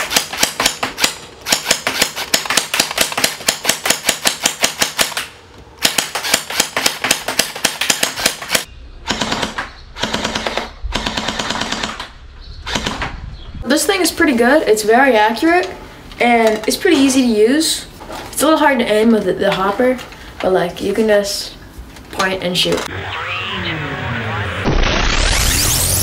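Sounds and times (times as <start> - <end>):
gel blaster firing full-auto: 8.2 - 12.1, 22.9 - 26.0.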